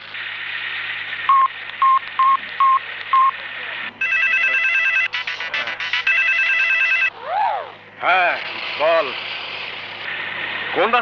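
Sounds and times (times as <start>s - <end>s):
short electronic beeps: 1.3s - 3.4s
warbling phone ringtone: 4.0s - 7.1s.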